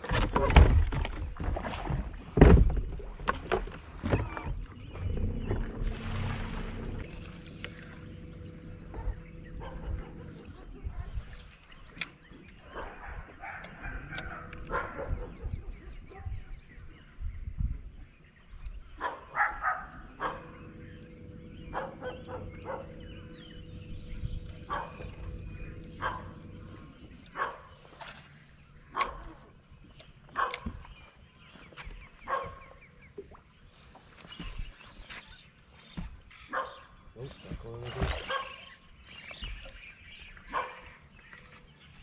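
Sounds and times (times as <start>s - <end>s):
steady low hum: 4.8s - 16.7s, 19.7s - 31.4s
dog barking: 8.9s - 10.4s, 12.7s - 16.3s, 19.0s - 20.5s, 21.7s - 23.0s, 24.7s - 25.0s, 26.0s - 26.3s, 27.3s - 27.7s, 30.4s - 30.7s, 32.3s - 32.6s, 36.5s - 36.9s, 38.2s - 38.6s, 40.5s - 40.8s.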